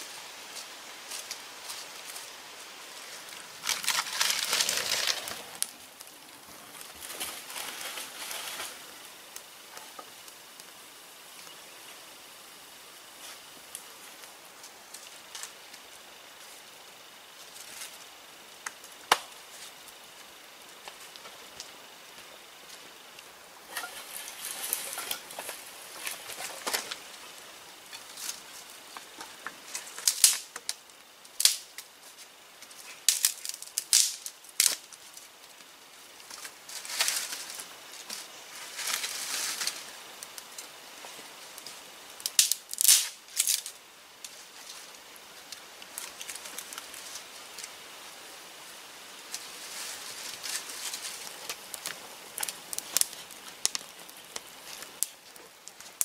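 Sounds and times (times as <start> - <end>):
sticks rustling and snapping: 3.2 - 9.9, 23.7 - 27.2, 27.9 - 35.3, 41.6 - 44.9, 45.5 - 47.8, 49.3 - 56.0.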